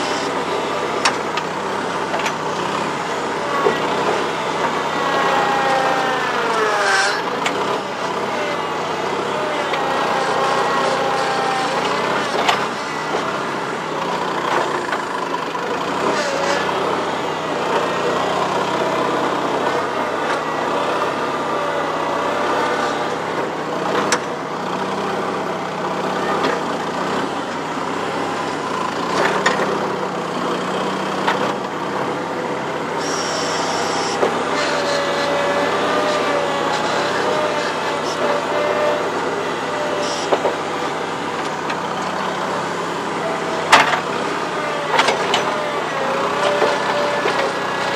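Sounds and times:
whining tones: 0.0s - 24.4s, 33.0s - 47.9s
skid steer engine running: 0.0s - 47.9s.

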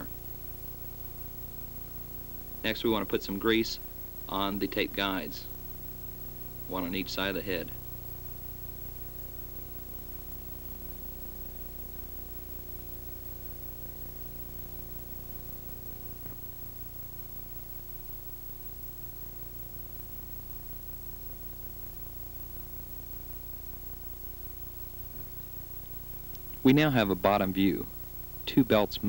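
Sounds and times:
tape hiss: 0.0s - 29.0s
faint click: 25.1s - 26.6s.

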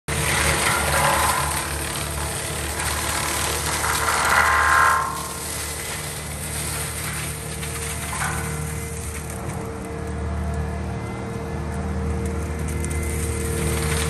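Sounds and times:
mulching head grinding brush: 0.0s - 9.9s
mulcher engine humming: 0.0s - 14.0s.

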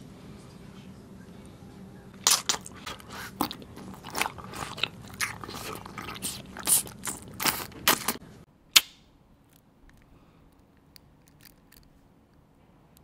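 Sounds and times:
candy crunching while chewed: 2.2s - 8.2s, 9.5s - 12.0s.

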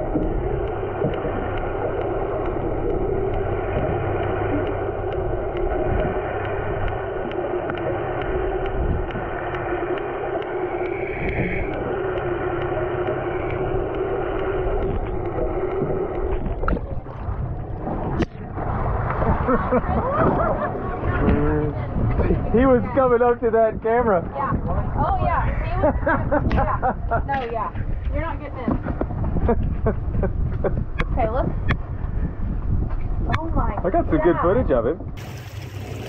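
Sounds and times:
faint ticking: 0.0s - 18.6s
muffled underwater water noise: 0.0s - 36.0s
outboard motor hum underwater: 0.0s - 36.0s.

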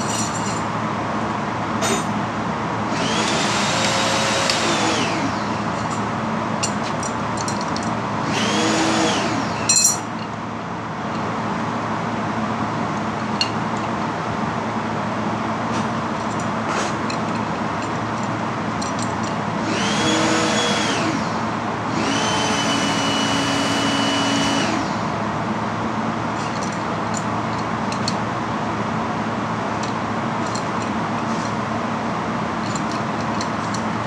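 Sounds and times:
steady mechanical hum: 0.0s - 34.0s
small motor whining: 2.9s - 5.4s, 8.3s - 9.5s, 19.6s - 21.3s, 21.9s - 25.0s.

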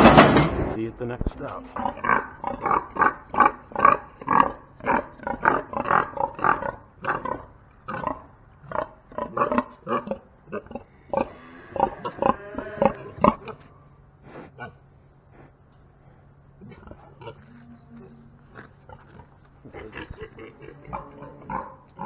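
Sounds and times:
pigs grunting: 1.6s - 22.0s
pig high-pitched call: 9.2s - 13.6s, 19.7s - 22.0s.

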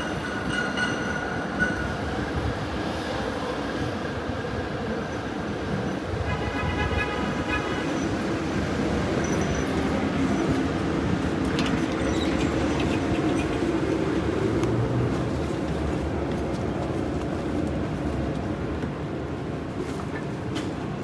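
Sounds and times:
streetcar rumble: 0.0s - 21.0s
high brake squeal: 9.2s - 9.8s.

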